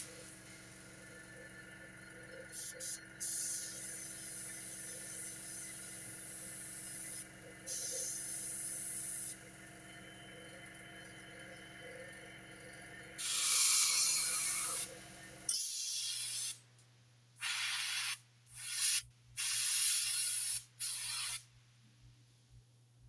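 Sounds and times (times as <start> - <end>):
airbrush spraying hiss: 2.5 - 9.4, 13.2 - 14.9, 15.5 - 16.6, 17.4 - 21.4.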